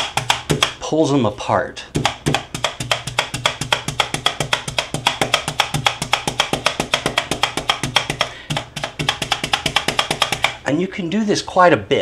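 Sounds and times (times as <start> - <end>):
meat tenderizer blades clicking: 2.0 - 10.6.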